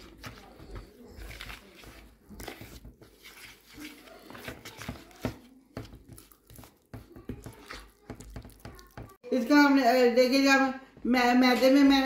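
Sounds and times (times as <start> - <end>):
metal spoon stirring batter: 0.0 - 9.2.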